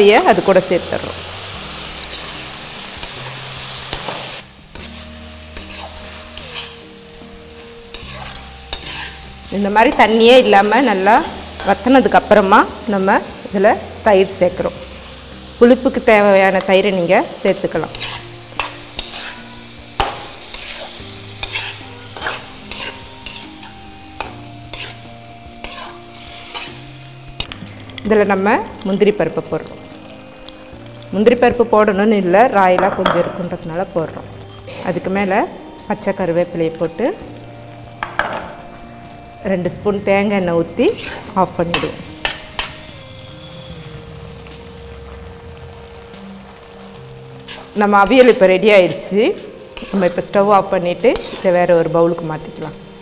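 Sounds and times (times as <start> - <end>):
light sizzle from pan: 0.0 - 53.0
metal spatula scraping pan: 1.9 - 6.9, 7.8 - 12.0, 17.8 - 26.9, 40.8 - 44.8, 47.4 - 50.4, 51.0 - 51.9.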